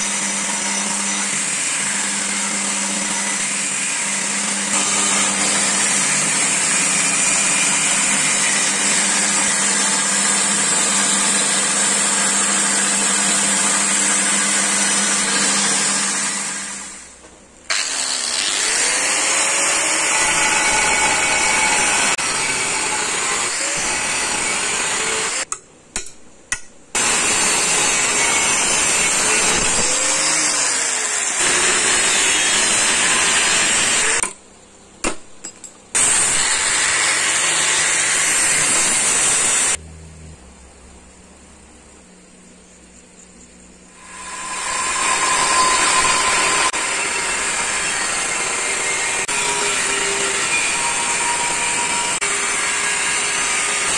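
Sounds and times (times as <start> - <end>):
power tool working blade: 0.0 - 25.5, 27.0 - 34.3, 36.0 - 39.8, 44.0 - 53.9
belt grinder grinding steel: 17.7 - 25.5, 27.0 - 34.2, 44.0 - 53.9.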